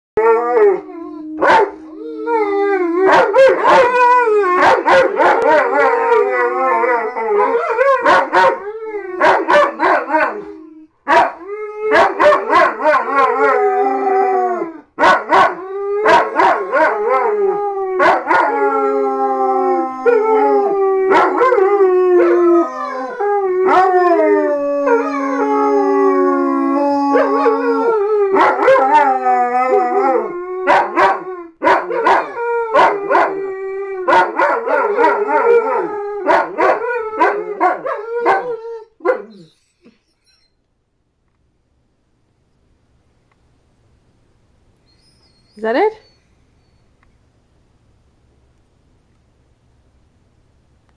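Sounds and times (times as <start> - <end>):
dogs howling: 0.2 - 39.6.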